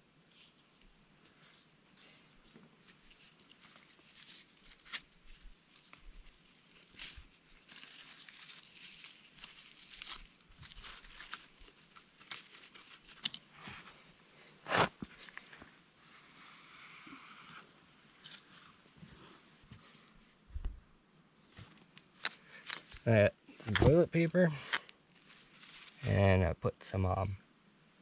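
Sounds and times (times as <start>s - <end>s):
kindling fire crackling: 0.8s - 13.3s, 18.2s - 26.3s.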